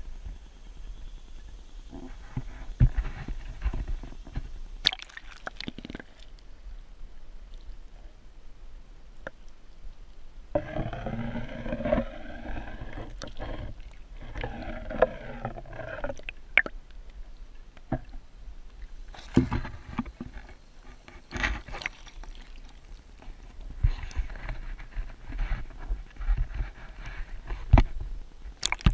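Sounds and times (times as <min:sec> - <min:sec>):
short water splashes: 0:04.8 - 0:06.3, 0:21.6 - 0:23.1, 0:28.6 - 0:28.9.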